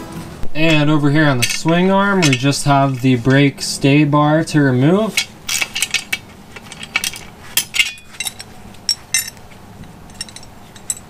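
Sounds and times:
wrench and bolt metal clinks: 0.7s - 3.1s, 5.0s - 11.0s.

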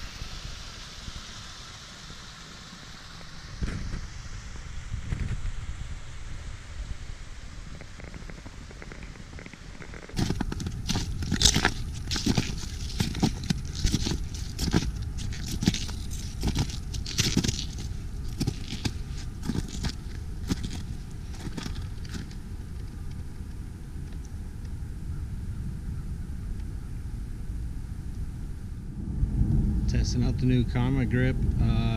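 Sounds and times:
wind rumble on microphone: 3.4s - 31.9s
footsteps crunching on icy leaves: 10.1s - 22.9s.

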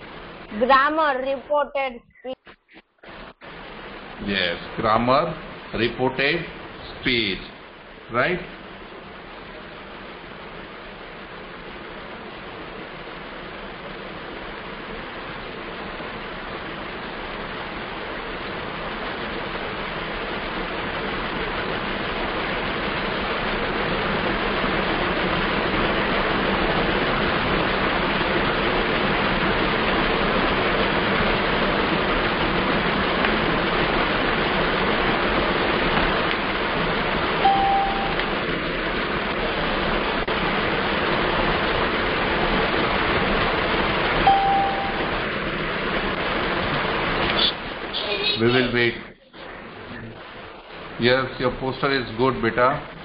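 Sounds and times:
loud rushing noise: 14.0s - 53.0s
short high beep: 37.4s - 38.2s, 44.3s - 45.1s.

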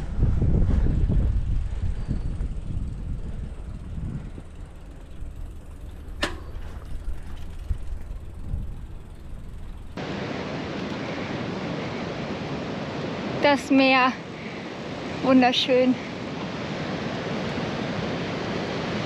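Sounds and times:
bicycle riding rumble: 0.0s - 19.0s
faint mechanical ticking: 2.7s - 10.0s
sea surf: 10.0s - 19.0s.

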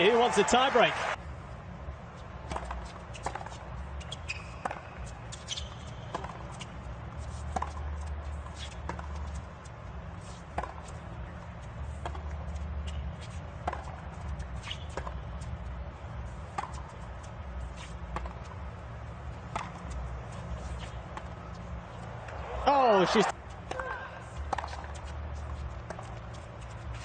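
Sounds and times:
tennis ball bouncing: 2.4s - 3.6s, 4.3s - 6.7s, 7.3s - 9.4s, 10.2s - 11.0s, 12.0s - 12.4s, 13.6s - 15.3s, 16.4s - 18.8s, 19.4s - 22.4s, 23.6s - 27.0s
tennis racket hitting ball: 24.5s - 25.1s.

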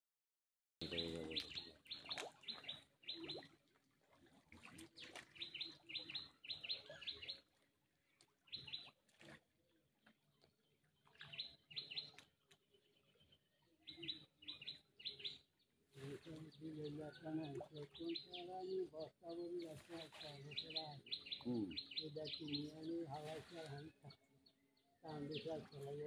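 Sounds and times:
small birds chirping: 0.8s - 3.5s, 4.6s - 7.5s, 12.9s - 15.5s, 16.2s - 26.0s.

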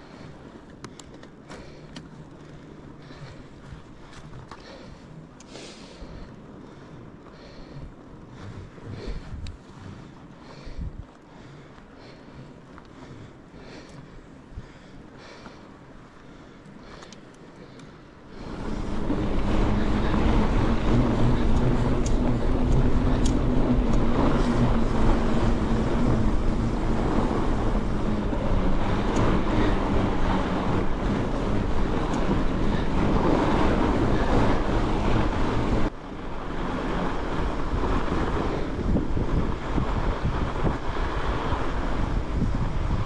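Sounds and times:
bike tyres rumbling on snow: 0.0s - 43.0s
wind buffeting the microphone: 6.0s - 12.4s, 18.3s - 43.0s.

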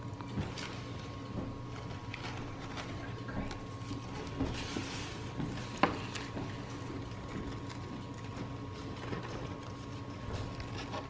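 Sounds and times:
paper bag rustling: 0.0s - 11.0s
steady background hum: 0.0s - 11.0s.

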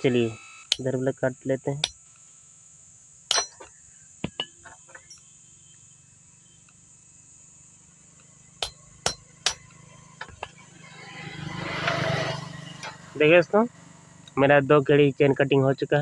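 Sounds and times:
hammer striking chisel on metal: 3.3s - 3.7s, 8.6s - 10.6s.

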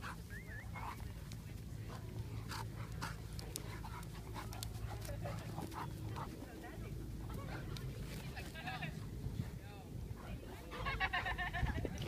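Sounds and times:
dogs panting and huffing: 0.0s - 8.7s, 9.4s - 12.0s
scuffling noises: 0.0s - 9.6s.

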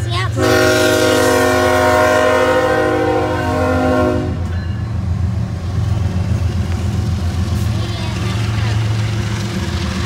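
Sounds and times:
locomotive air horn chord: 0.4s - 4.5s.

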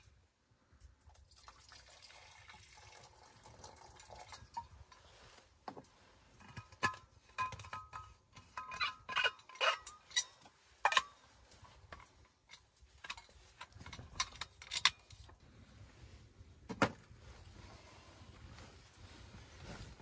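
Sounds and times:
metal flask clinks and scrapes: 6.3s - 15.3s.

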